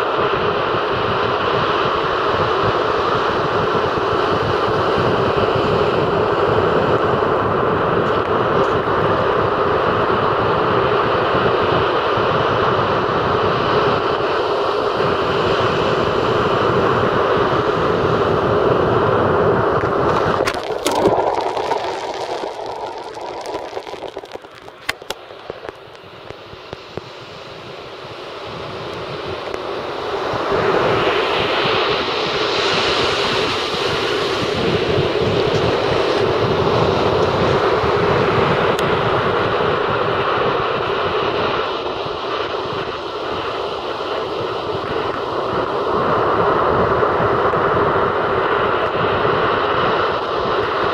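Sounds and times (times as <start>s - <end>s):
sea waves breaking on shore: 13.7s - 38.6s
surf breaking on shore: 15.0s - 27.4s.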